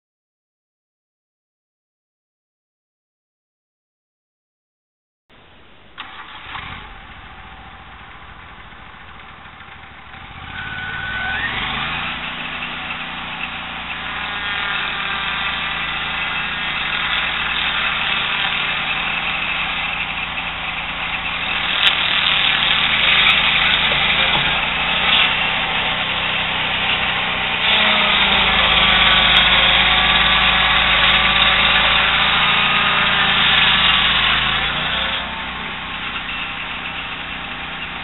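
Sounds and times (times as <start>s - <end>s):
sawmill engine revving: 5.9s - 38.0s
circular saw blade cutting wood: 6.0s - 38.0s.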